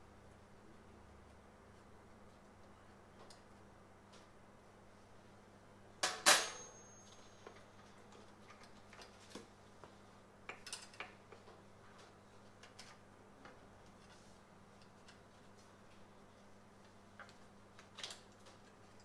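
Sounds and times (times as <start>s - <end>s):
sharp metallic clank: 6.0s - 7.2s.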